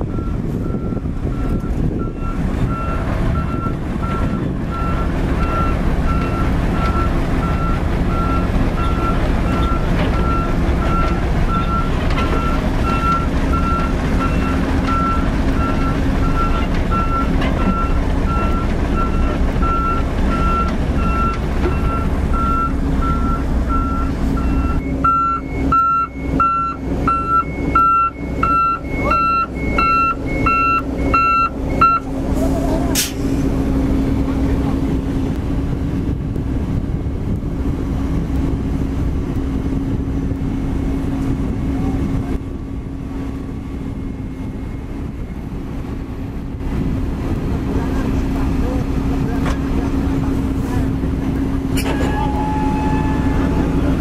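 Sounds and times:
truck back-up alarm beeping: 0.0 - 33.5, 51.5 - 54.0
diesel engine rumble: 0.0 - 54.0.

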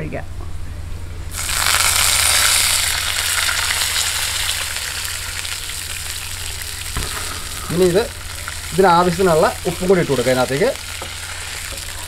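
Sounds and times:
water sizzling in hot oil: 1.3 - 12.0.

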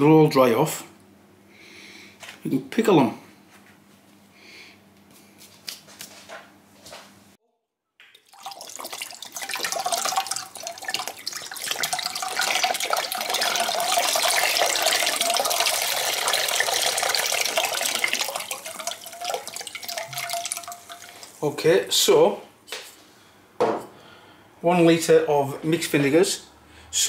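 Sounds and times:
liquid pouring into a saucepan: 8.0 - 21.6.

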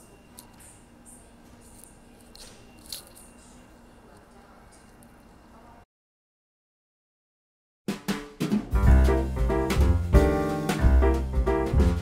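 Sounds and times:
background music: 8.6 - 12.0.

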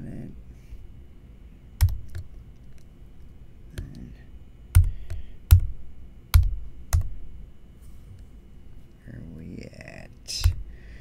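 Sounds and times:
keyboard keystrokes: 1.8 - 2.3, 6.3 - 7.1.

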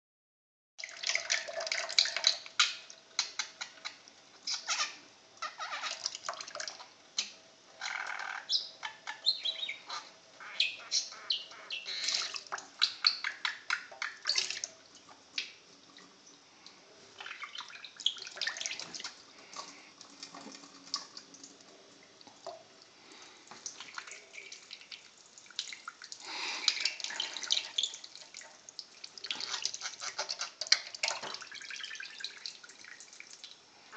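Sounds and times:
tap water splashing: 23.5 - 33.6.

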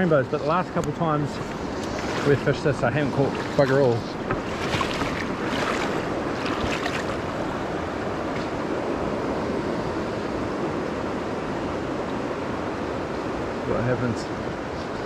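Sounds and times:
river water rushing over stones: 0.0 - 9.2.

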